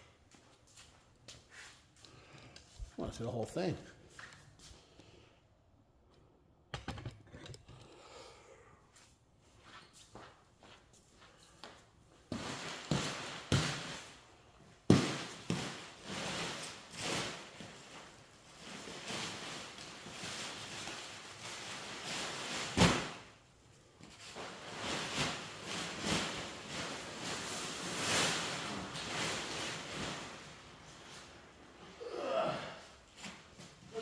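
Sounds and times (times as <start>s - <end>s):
objects knocking and clunking: 6.7s - 7.9s.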